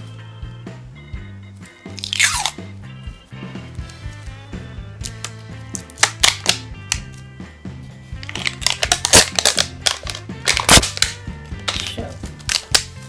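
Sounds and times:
background music: 0:00.0 - 0:13.0
wrapping crinkling: 0:08.2 - 0:13.0.

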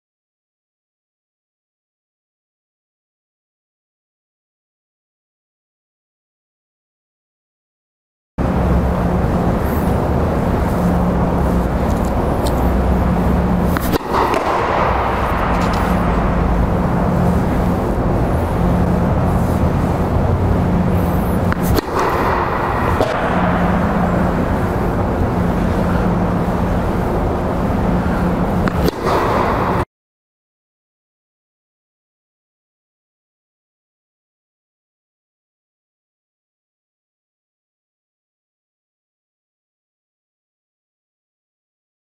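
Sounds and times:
blower rushing with low hum: 0:08.4 - 0:29.9.

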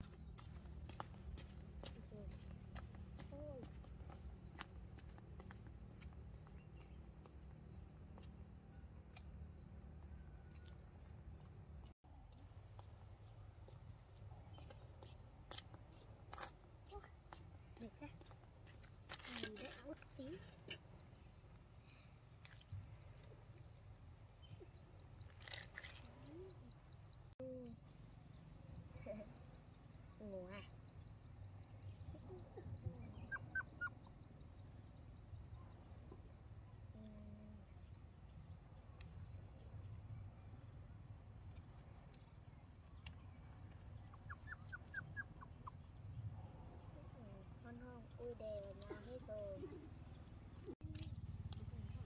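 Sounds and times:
puppies whimpering: 0:44.1 - 0:45.7.

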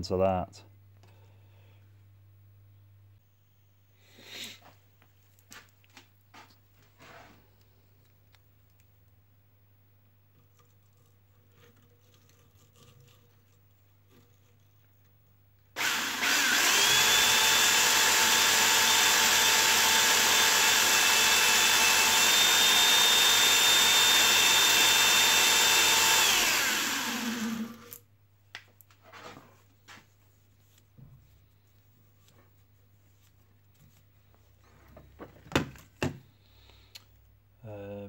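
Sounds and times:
power drill spinning hone: 0:15.8 - 0:28.0.

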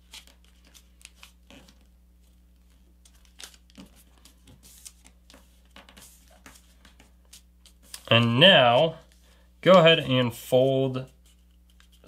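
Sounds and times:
paper rustling and crinkling: 0:00.0 - 0:09.2.

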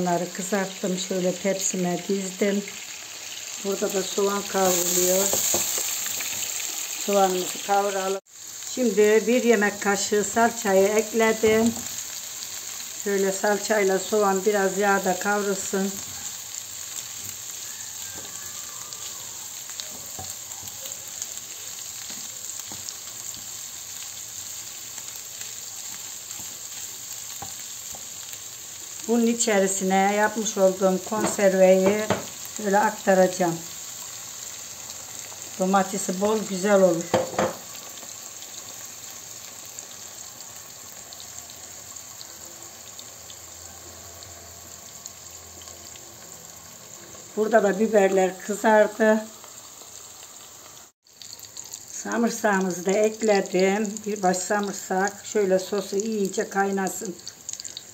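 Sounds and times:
onions sizzling in oil: 0:00.0 - 0:57.9
spoon tapping pan: 0:31.2 - 0:32.4, 0:37.0 - 0:37.7.

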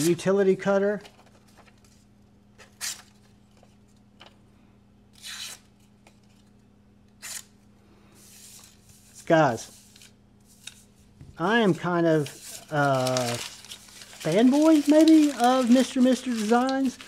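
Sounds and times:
paper rustling: 0:00.9 - 0:04.0, 0:12.0 - 0:17.0
knife slicing paper: 0:12.2 - 0:17.0.

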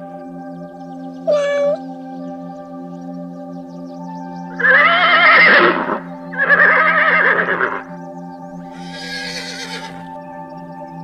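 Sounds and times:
background music: 0:00.0 - 0:11.0
horse whinnying: 0:06.4 - 0:07.8, 0:08.8 - 0:10.0.

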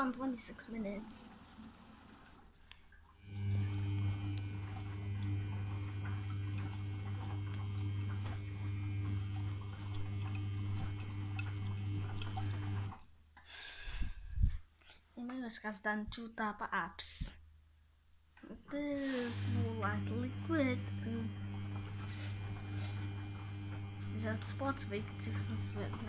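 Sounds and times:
water inlet valve hum: 0:00.0 - 0:13.1, 0:19.1 - 0:26.0.

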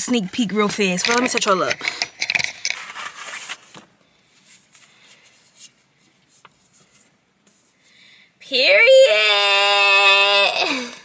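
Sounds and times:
paper rustling: 0:02.6 - 0:07.7.

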